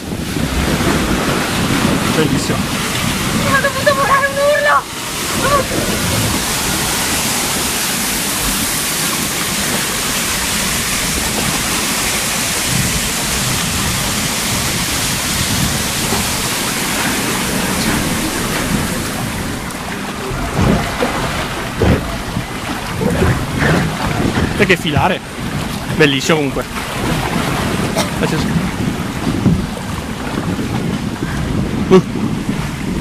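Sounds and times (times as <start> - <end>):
white water churning: 0.0 - 33.0
low knocks: 15.4 - 26.0, 26.6 - 29.8.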